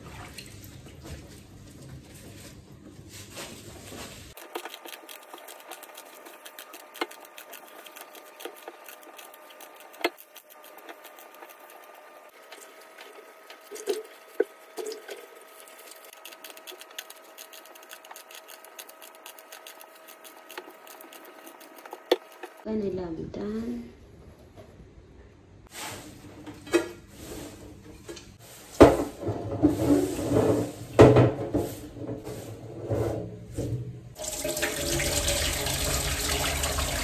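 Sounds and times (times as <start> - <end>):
leaves splashing in water: 4.3 - 22.6
knife cutting leaves: 4.4 - 12.4, 15.8 - 22.6.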